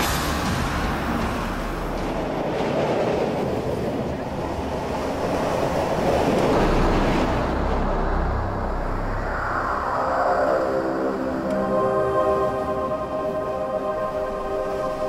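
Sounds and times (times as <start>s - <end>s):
train rumbling on rails: 0.0s - 15.0s.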